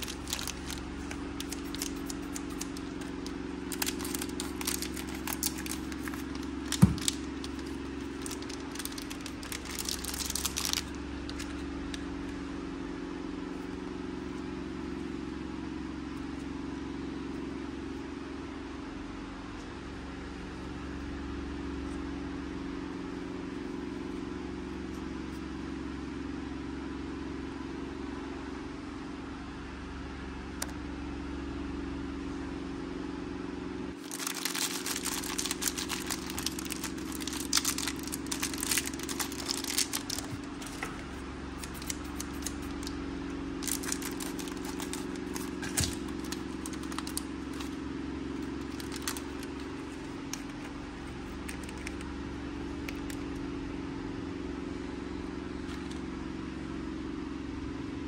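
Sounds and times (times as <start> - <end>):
foil wrappers crinkling: 0.0 - 12.0, 34.0 - 43.0, 43.6 - 47.8, 48.4 - 52.1
steady low hum: 0.0 - 58.0.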